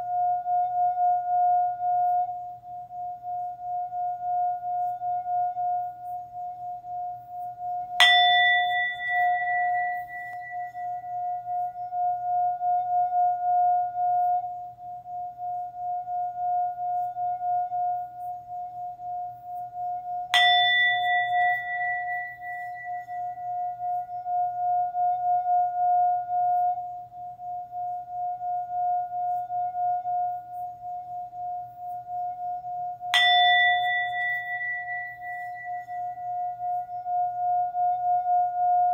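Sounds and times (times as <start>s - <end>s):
singing bowl ringing: 0.0s - 38.9s.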